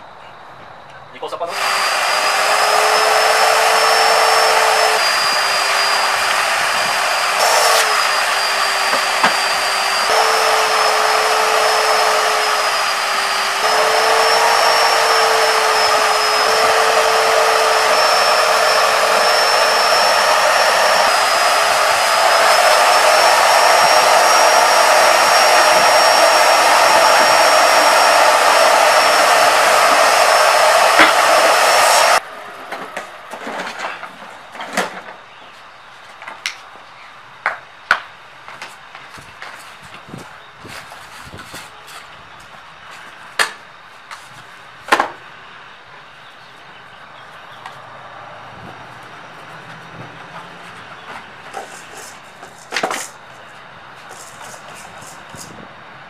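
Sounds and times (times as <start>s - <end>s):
shop vacuum motor whining: 1.5s - 34.2s.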